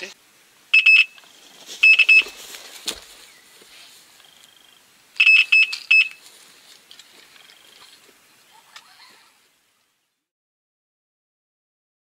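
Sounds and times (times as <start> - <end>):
faint high beeps: 0.7 - 1.2, 1.8 - 2.4, 5.2 - 6.2
bite alarm beeping: 0.8 - 1.2, 1.8 - 2.4, 5.2 - 6.2.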